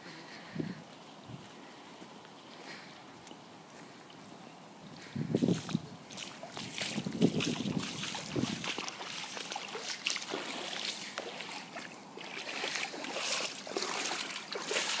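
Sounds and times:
feet wading through shallow water: 0:05.0 - 0:15.0
water splashing and sloshing: 0:05.4 - 0:15.0.

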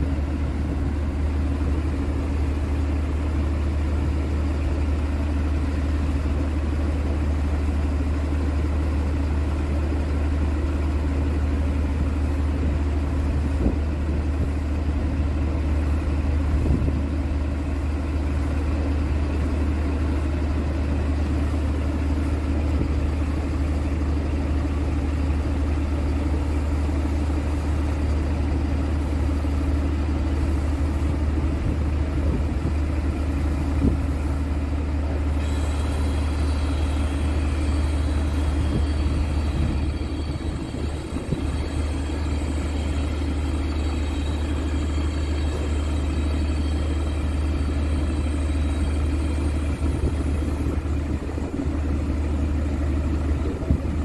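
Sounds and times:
diesel truck engine idling: 0:00.0 - 0:54.0
faint high whine: 0:35.3 - 0:52.6.

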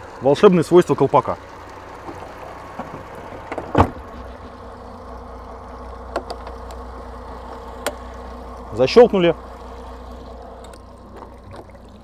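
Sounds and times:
outboard engine idling: 0:00.0 - 0:12.0
latch clicks: 0:06.1 - 0:06.8.

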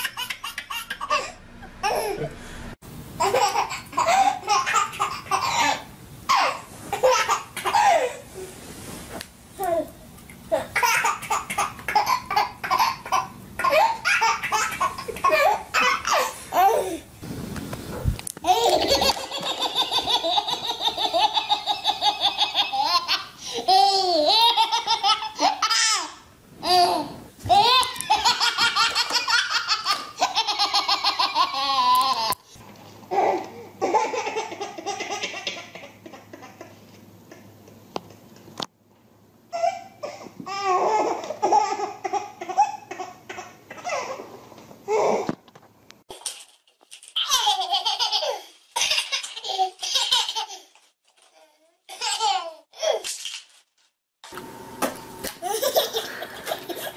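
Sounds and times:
baby belly laughing: 0:00.0 - 0:02.3, 0:03.2 - 0:08.2, 0:10.5 - 0:17.0, 0:18.4 - 0:32.4, 0:47.2 - 0:50.8, 0:55.4 - 0:56.9.

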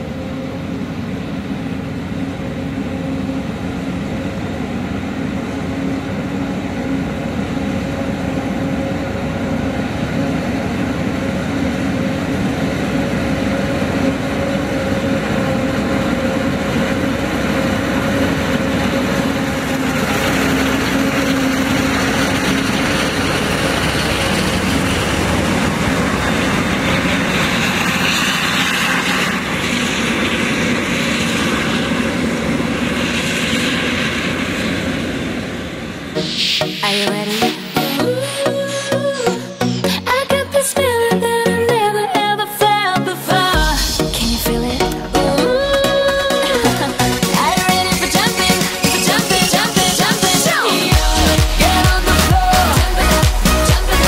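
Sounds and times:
diesel machinery humming: 0:00.0 - 0:54.0
rushing hiss: 0:36.2 - 0:38.9.

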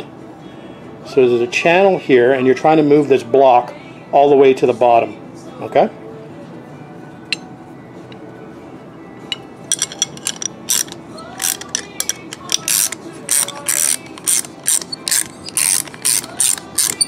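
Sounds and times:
ratcheting wrench clicking: 0:09.7 - 0:17.0.

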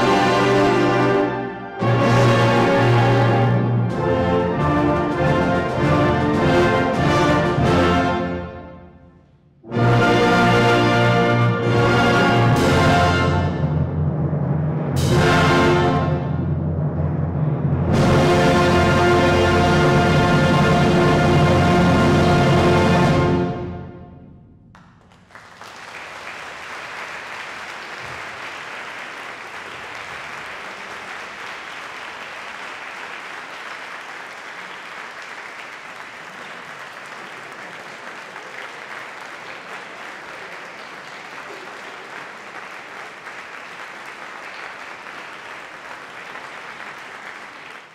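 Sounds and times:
audience applauding: 0:24.7 - 0:47.9.

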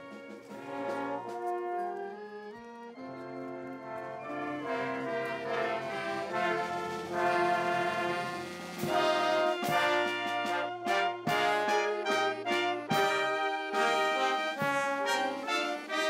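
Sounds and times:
military brass band playing: 0:00.0 - 0:16.0.

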